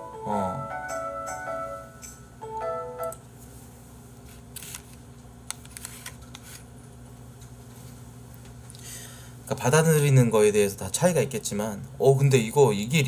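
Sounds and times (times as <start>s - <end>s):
soft background music: 0.0s - 3.2s.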